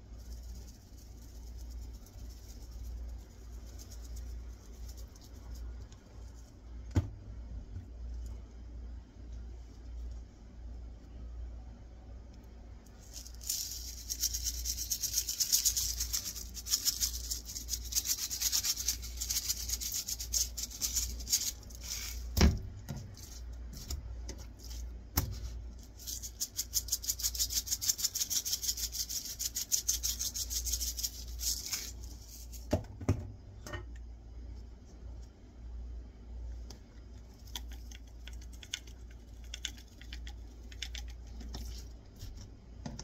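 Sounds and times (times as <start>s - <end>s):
spice shaker rattling: 0.0s - 6.6s, 12.9s - 22.4s, 23.0s - 32.8s, 37.1s - 42.4s.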